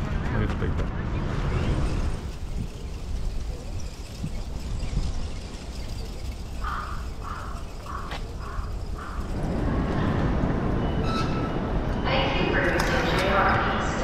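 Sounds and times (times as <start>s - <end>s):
crow cawing: 6.6s - 9.3s.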